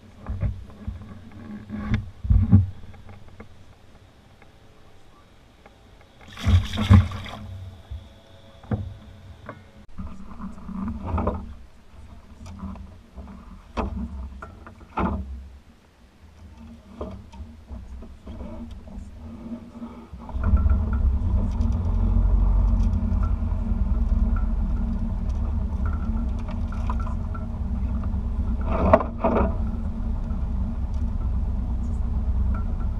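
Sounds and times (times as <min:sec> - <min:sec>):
knocks and clicks in a boat: 0:00.0 - 0:04.6, 0:05.6 - 0:15.6, 0:16.4 - 0:32.9
fish splashing in water: 0:06.2 - 0:07.5
steady low rumble: 0:17.5 - 0:32.9.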